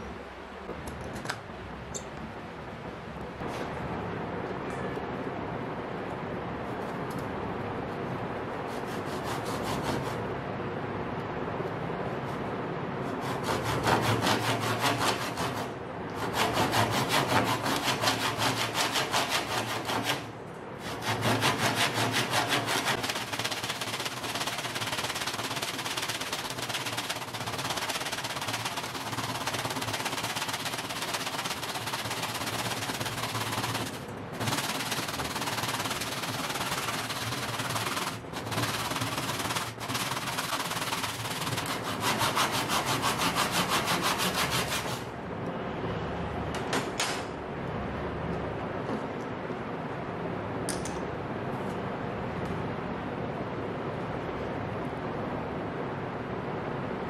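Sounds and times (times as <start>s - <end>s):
hand saw cutting wood: 8.7s - 10.2s, 13.1s - 45.1s.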